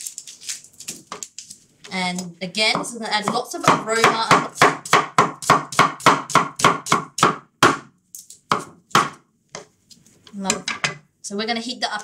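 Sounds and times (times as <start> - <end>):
cleaver chopping on wooden board: 2.8 - 7.9, 8.5 - 9.7.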